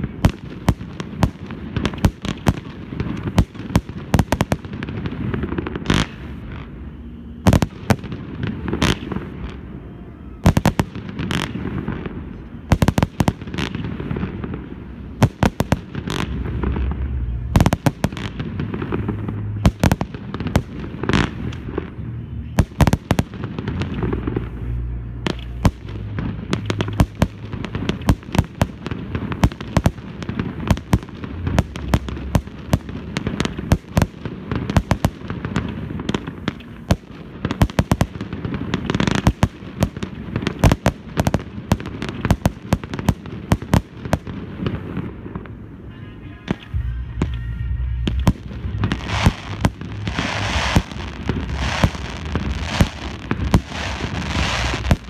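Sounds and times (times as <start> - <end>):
fireworks bangs and cracks: 0.0 - 55.0
low rumble: 14.0 - 33.7, 46.7 - 55.0.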